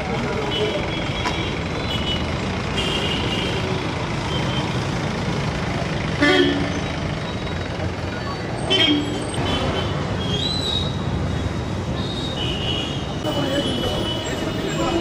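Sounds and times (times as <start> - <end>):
vehicle engines running: 0.0 - 12.3, 13.1 - 15.0
vehicle horn honking: 6.2 - 6.8, 12.4 - 14.5.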